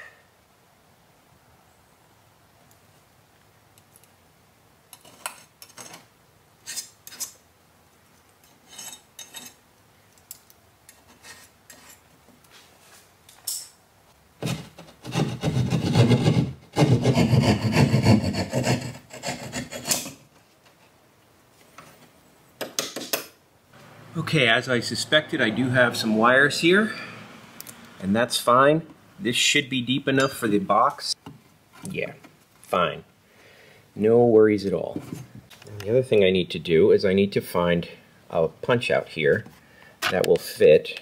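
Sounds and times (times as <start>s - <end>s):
saw cutting drywall: 14.4s - 20.2s.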